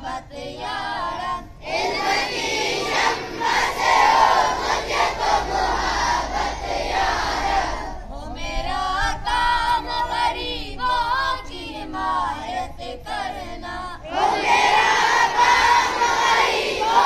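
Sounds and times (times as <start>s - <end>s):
children chanting together: 0.0s - 8.0s, 14.0s - 17.0s.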